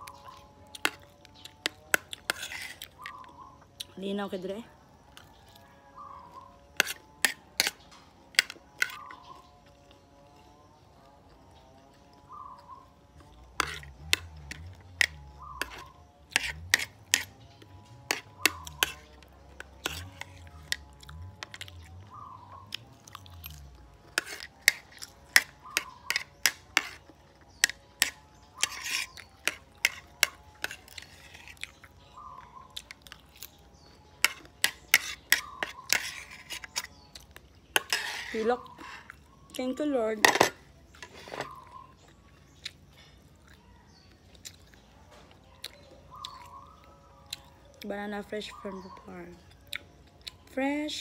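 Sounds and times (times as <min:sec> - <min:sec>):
chewing: 0:00.0 - 0:04.0, 0:05.0 - 0:39.6, 0:40.5 - 0:47.9, 0:48.5 - 0:50.6
spoon scraping ceramic plate: 0:00.8 - 0:03.1, 0:06.6 - 0:09.5, 0:13.1 - 0:21.9, 0:22.8 - 0:32.0, 0:32.8 - 0:37.1, 0:37.7 - 0:39.2, 0:39.8 - 0:41.8.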